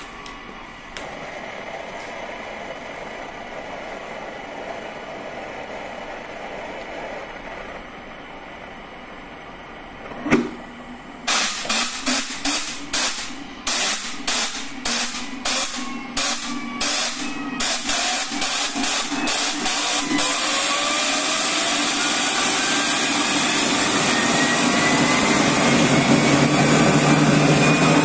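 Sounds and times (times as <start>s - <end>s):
turbine whine rising: 0.0s - 28.0s
compressed air blasts hissing: 11.3s - 19.0s.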